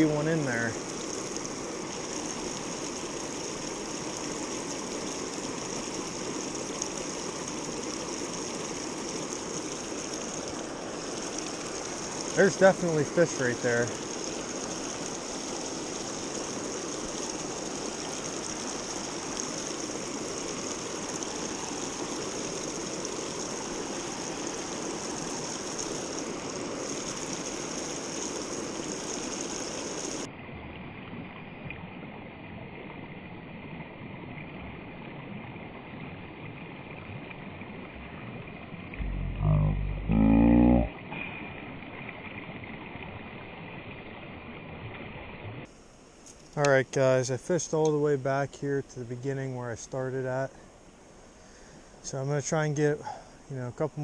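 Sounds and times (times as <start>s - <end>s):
mountain stream rushing: 0.0s - 30.4s.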